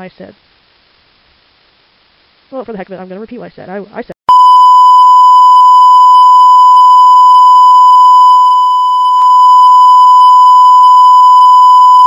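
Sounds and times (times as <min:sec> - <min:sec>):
censor bleep tone: 0:04.3 - 0:12.0.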